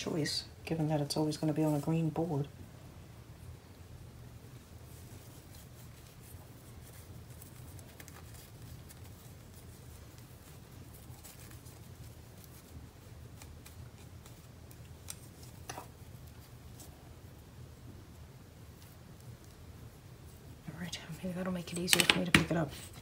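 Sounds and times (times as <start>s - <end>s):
low steady hum: 0.0s - 23.0s
hands handling craft supplies: 21.5s - 23.0s.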